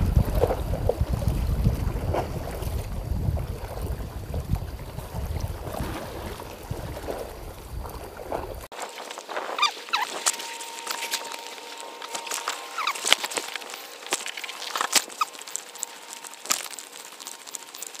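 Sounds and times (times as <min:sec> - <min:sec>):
wind buffeting microphone: 0:00.0 - 0:10.6
sea noise: 0:00.0 - 0:18.0
faint steady tone: 0:03.8 - 0:18.0
short squeaky chirps: 0:09.6 - 0:18.0.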